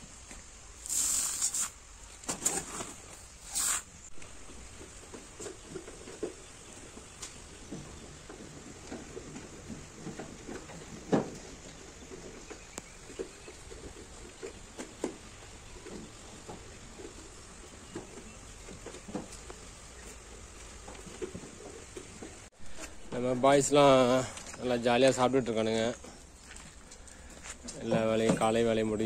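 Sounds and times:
animals crunching fodder: 2.5 - 23.1.

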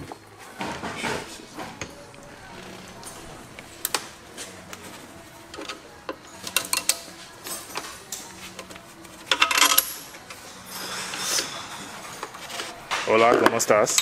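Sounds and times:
metal tools clinking: 5.5 - 14.0
metallic rattle: 5.6 - 13.1.

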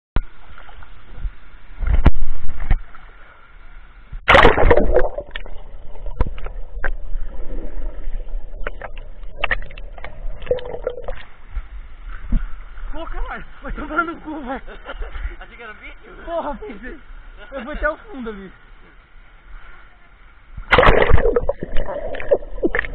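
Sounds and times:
water splashing: 4.2 - 11.5, 20.6 - 22.9
underwater knocks and clicks: 4.5 - 7.1, 8.5 - 11.3, 20.8 - 22.9.

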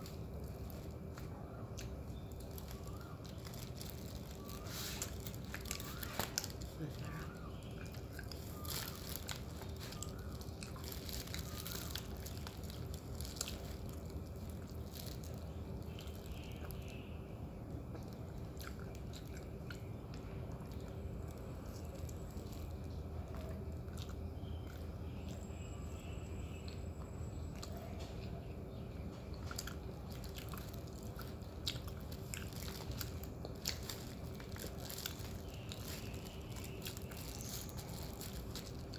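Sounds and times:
person chewing: 0.0 - 16.9, 17.9 - 25.5, 29.2 - 38.9
paper wrapper crinkling: 0.0 - 17.0, 30.1 - 38.9
flatbread crackling: 0.0 - 17.1, 17.8 - 27.8, 28.7 - 38.9
faint steady hum: 0.0 - 38.9.

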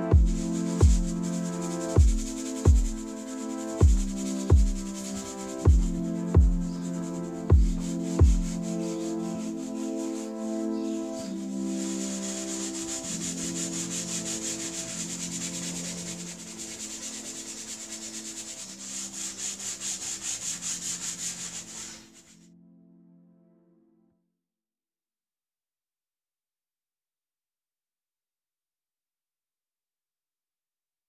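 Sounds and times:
soft background music: 0.0 - 24.2
brush scrubbing leather: 11.8 - 22.2.

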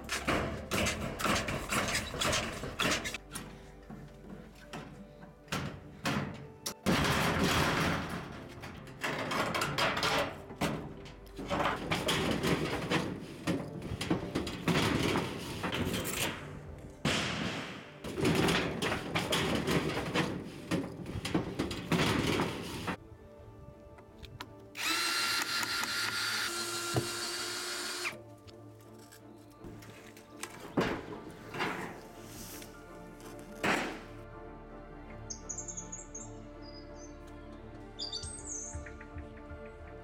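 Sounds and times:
metal roofing rattling and scraping: 0.0 - 3.6, 4.3 - 23.0
cordless drill whirring: 24.8 - 28.2.

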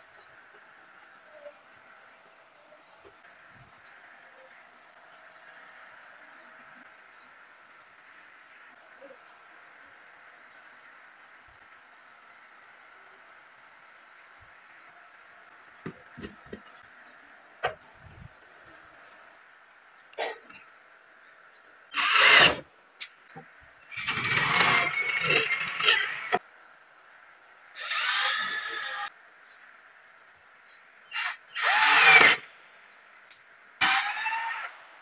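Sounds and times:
cordless drill driving screws: 21.9 - 22.6, 23.9 - 26.4, 27.8 - 29.1, 31.1 - 32.4, 33.8 - 34.8.

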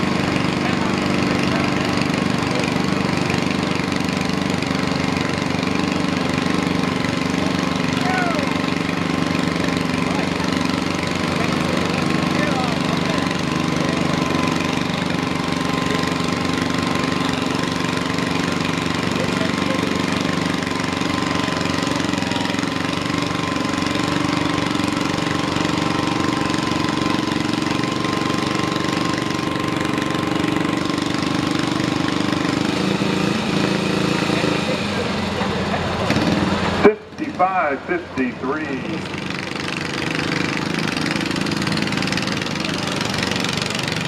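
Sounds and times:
tractor engine idling: 0.0 - 44.0.

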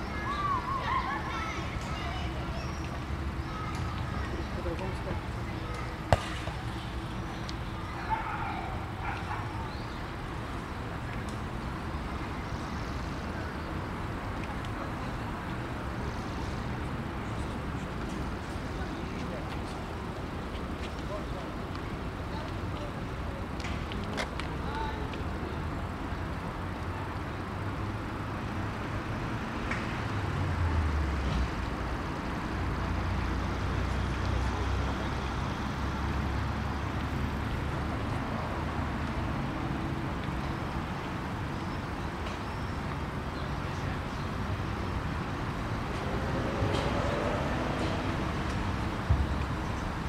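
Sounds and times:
road traffic: 0.0 - 50.0
bicycle rolling on pavement: 14.0 - 50.0.

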